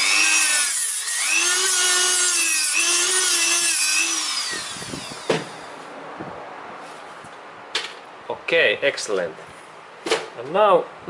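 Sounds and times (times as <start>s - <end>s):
rotary tool whining: 0.0s - 5.8s.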